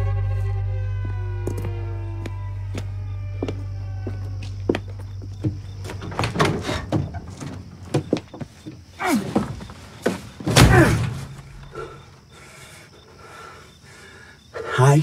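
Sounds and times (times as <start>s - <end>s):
knocks and creaks: 0.9s - 12.1s.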